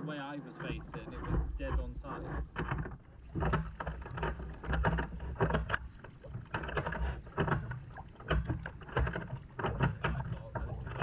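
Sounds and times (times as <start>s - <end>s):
kayak paddle splashing water: 0.6s - 11.0s.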